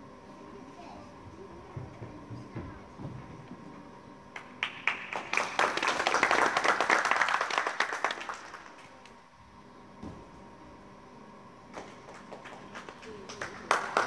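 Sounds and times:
people clapping: 4.3s - 9.1s, 11.7s - 14.0s.

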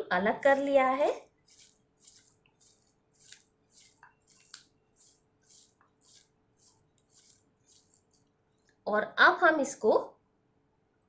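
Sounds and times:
hands squishing sliced onion: 0.4s - 8.2s.

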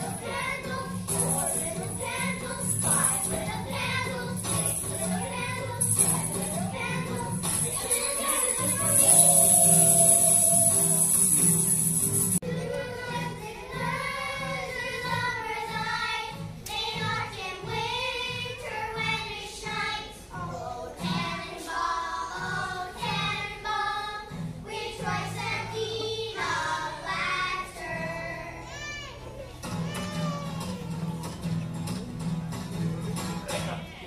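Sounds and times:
girls singing a christmas song: 0.0s - 11.4s, 12.1s - 29.0s
music accompaniment: 0.0s - 19.0s.

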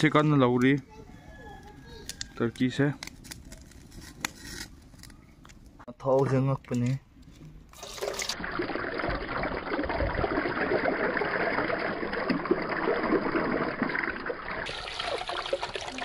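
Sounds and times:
water pouring and splashing: 7.8s - 16.0s.

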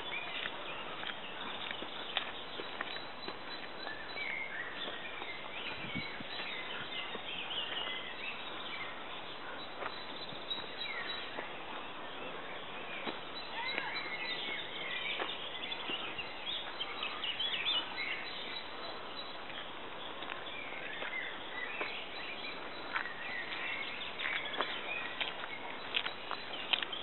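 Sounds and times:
birds chirping and whistling: 0.0s - 19.7s.

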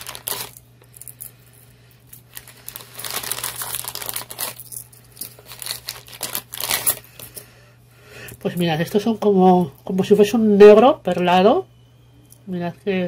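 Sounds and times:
plastic crinkling and rustling: 0.0s - 1.3s, 2.1s - 7.4s.

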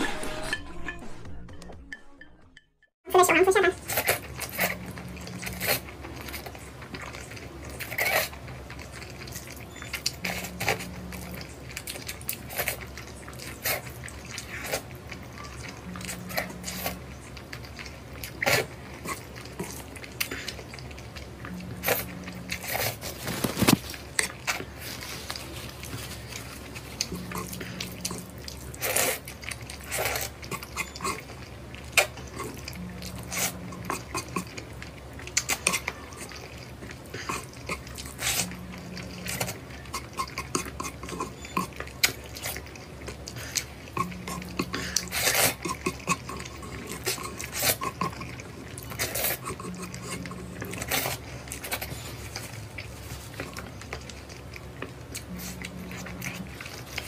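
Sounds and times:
mouth smacks while chewing: 3.9s - 57.0s
person slurping noodles: 21.8s - 31.3s, 43.2s - 53.5s.

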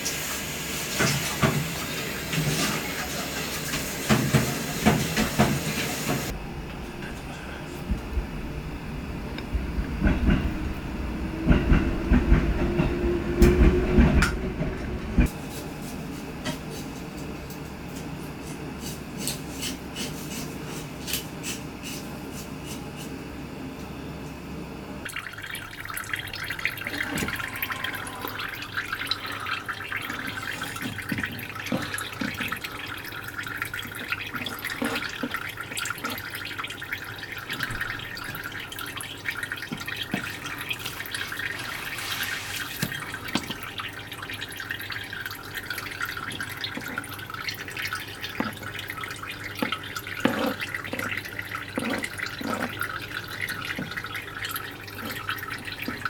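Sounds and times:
water dripping and trickling: 25.0s - 56.0s.

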